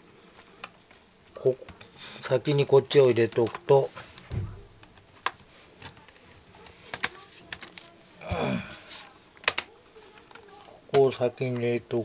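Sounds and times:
plastic clicks of laptop keyboard: 9.4 - 11.0.

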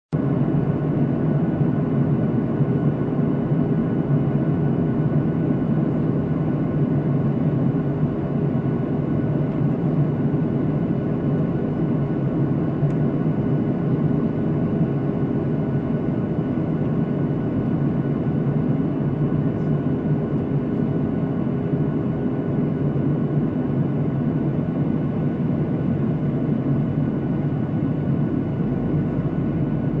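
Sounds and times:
jet cabin engine drone: 0.1 - 30.0
faint humming tones: 0.2 - 30.0.

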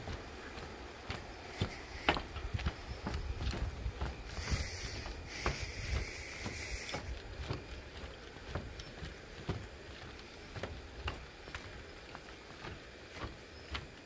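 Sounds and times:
footsteps on wooden planks: 0.0 - 14.0
high hiss: 1.3 - 7.6.

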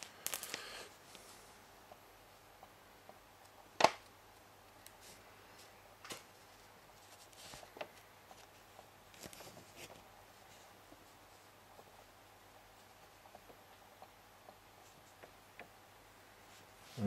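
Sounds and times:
paper rustling: 7.0 - 10.6.

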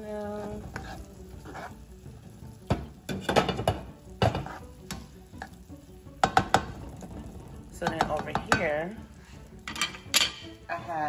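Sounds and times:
spatula scraping a frying pan: 0.3 - 2.2, 3.1 - 5.6.

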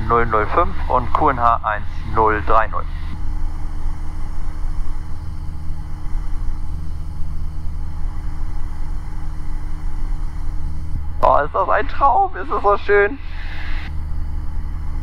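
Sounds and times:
aircraft engine and propeller droning: 0.0 - 15.0.

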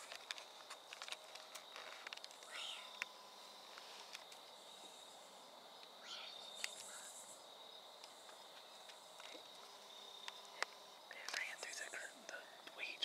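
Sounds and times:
insects trilling: 0.0 - 13.0
soft ticks: 10.2 - 12.8.

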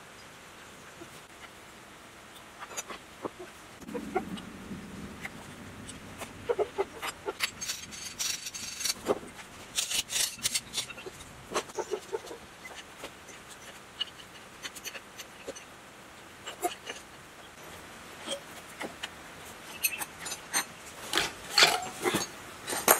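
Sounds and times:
hand tools clinking on metal: 19.8 - 22.9.

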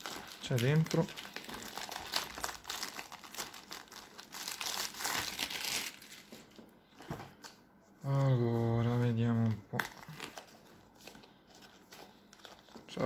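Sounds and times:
plastic film crinkling: 0.0 - 6.6, 9.7 - 13.0.

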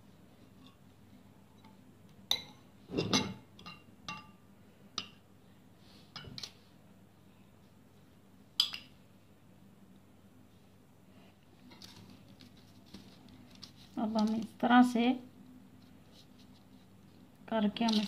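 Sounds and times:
metal spoon clinking glass bowl: 2.3 - 4.4.

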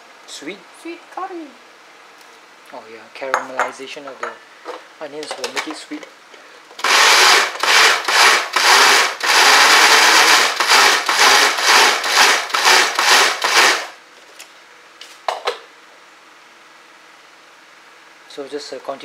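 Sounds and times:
electric food chopper pulsing: 6.8 - 14.0.

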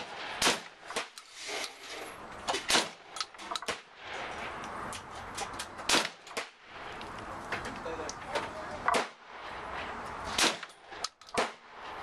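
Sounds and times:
shotgun shots: 0.0 - 1.2, 2.5 - 4.3, 5.9 - 6.6, 8.9 - 9.3, 10.3 - 12.0.

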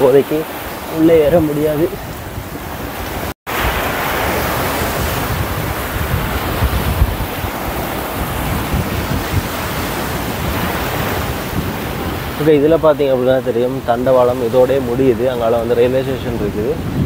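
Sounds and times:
surf breaking on beach: 0.0 - 17.0
wind buffeting microphone: 0.0 - 17.0.

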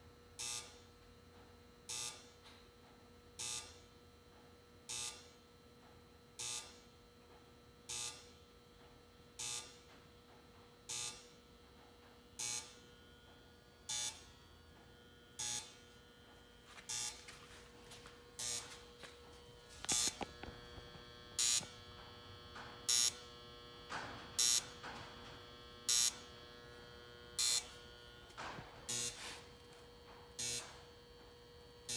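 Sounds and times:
steady low hum: 0.0 - 31.9
strobe flash buzz: 13.9 - 14.4, 15.3 - 16.0, 16.9 - 25.0, 25.6 - 29.7, 30.4 - 30.9.

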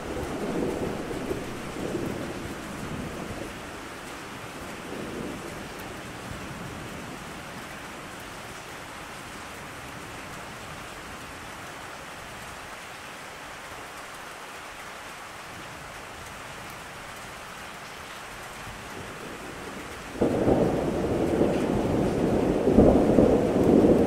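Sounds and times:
low thunder rumble: 0.0 - 3.6, 19.0 - 24.0
steady rain: 0.0 - 24.0.

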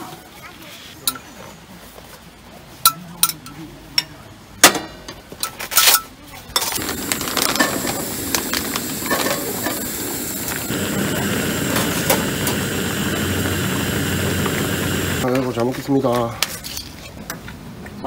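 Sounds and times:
patties sizzling in a frying pan: 6.8 - 15.3
soup boiling hard: 6.8 - 15.3.

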